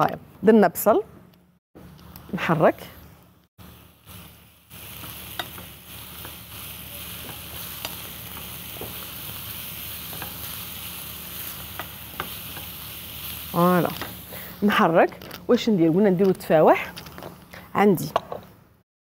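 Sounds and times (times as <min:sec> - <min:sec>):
vegetables sizzling in a frying pan: 0:03.6 - 0:17.2.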